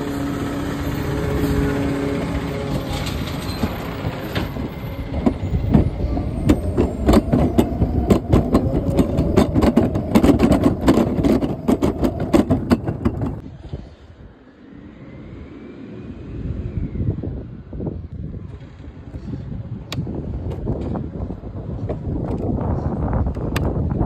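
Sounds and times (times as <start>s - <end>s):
garbage truck engine: 0.0s - 13.4s
clattering and banging: 2.8s - 13.4s.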